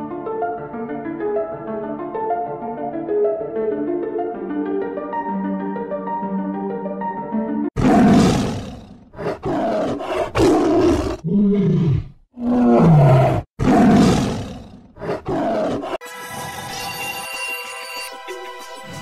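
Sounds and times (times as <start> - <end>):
tigers roaring: 7.8 - 16.0.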